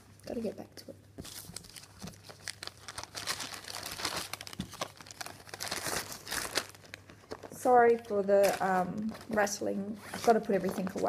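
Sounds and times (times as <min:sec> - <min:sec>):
plastic bag crinkling: 0:01.2 - 0:11.0.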